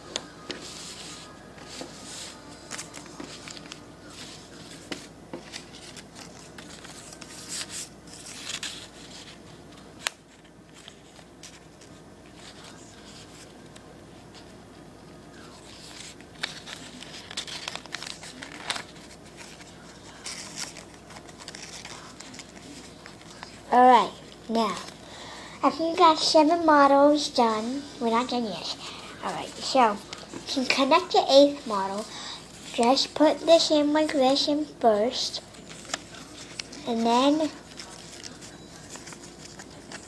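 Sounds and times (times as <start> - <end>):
paper crinkling and rustling: 0.1 - 14.5, 15.4 - 25.0, 28.9 - 34.4, 35.3 - 40.0.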